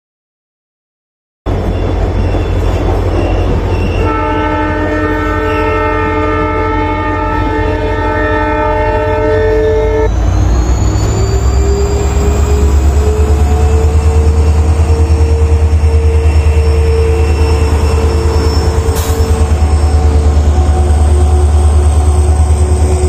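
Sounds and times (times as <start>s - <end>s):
diesel locomotive engine throbbing: 1.5s - 23.0s
locomotive horn: 3.8s - 10.2s, 11.1s - 23.0s.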